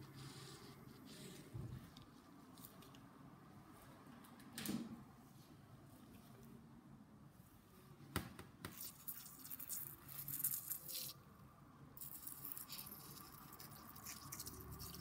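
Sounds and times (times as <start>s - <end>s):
metal scraping on tooth hiss: 8.8s - 11.2s.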